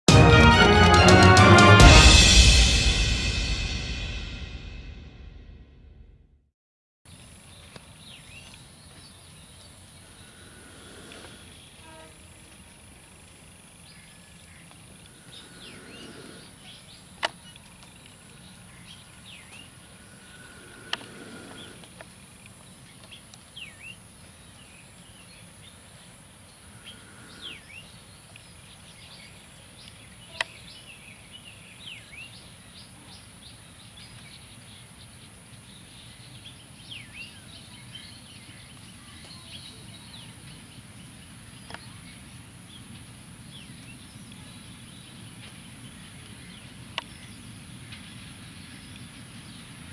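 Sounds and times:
small birds chirping: 7.4s - 49.9s
distant diesel locomotive rumble: 38.5s - 49.9s.

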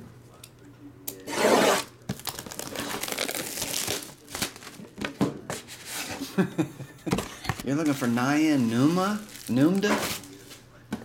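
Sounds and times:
plastic wrap tearing: 1.3s - 4.9s, 7.8s - 10.4s
plastic crinkling: 2.1s - 4.9s, 7.7s - 10.5s.

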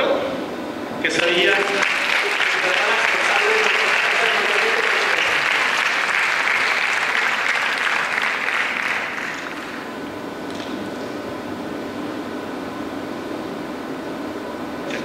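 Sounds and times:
steady background hum: 0.0s - 15.0s
audience applauding: 1.2s - 9.9s.

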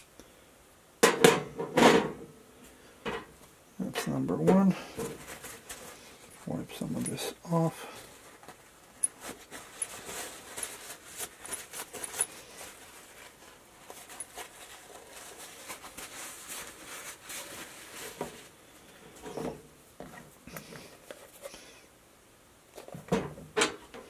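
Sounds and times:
paper towel rustling: 4.5s - 19.4s.

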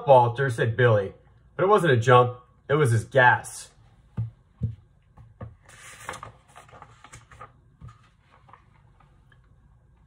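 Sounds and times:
paper rustle: 5.6s - 9.3s.

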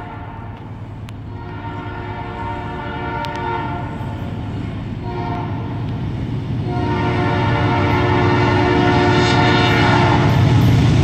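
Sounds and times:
train horn blasts: 0.0s - 0.7s, 1.3s - 4.2s, 5.0s - 5.9s, 6.6s - 10.6s
train rumble: 0.0s - 11.0s.

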